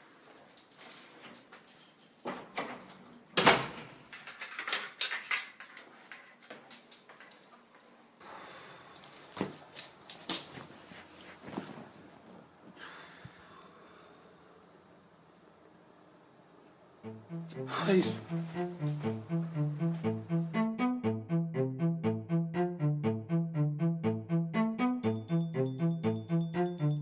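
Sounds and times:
footsteps: 17.5s - 20.2s.

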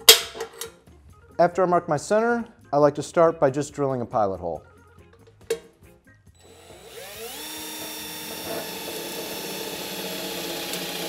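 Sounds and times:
cordless drill whining: 6.4s - 11.0s.

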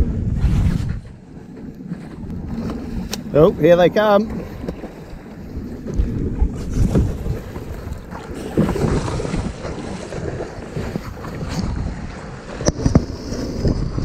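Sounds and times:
wind buffeting microphone: 0.0s - 14.0s
water splashing against kayak hull: 0.6s - 14.0s.

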